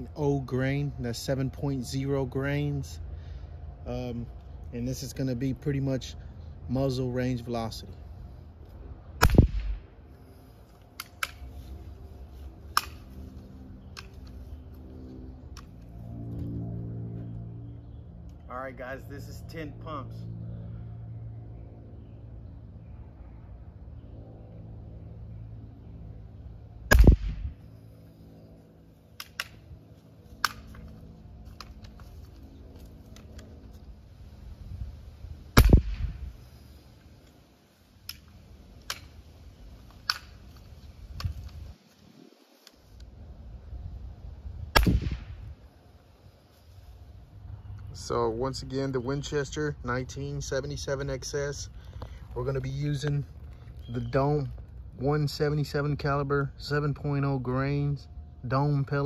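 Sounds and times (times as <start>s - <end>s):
air rifle shot: 9.2s - 9.9s, 26.9s - 27.6s, 35.6s - 36.3s, 44.7s - 45.5s.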